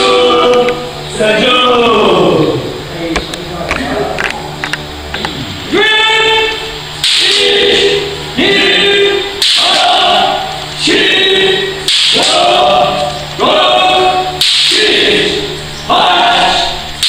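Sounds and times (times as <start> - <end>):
group shouting in unison: 5.7 - 16.8.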